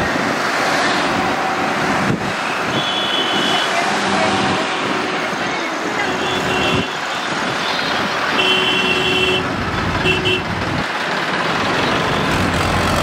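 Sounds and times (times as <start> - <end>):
highway traffic: 0.0 - 13.0
tractor engines: 0.0 - 13.0
vehicle horn toots: 2.7 - 5.2, 6.0 - 10.5.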